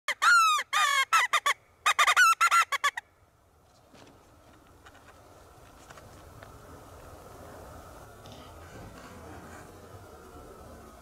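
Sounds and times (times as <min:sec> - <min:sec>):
coyote call: 0:00.1 - 0:03.0
coyote yipping: 0:00.1 - 0:03.0.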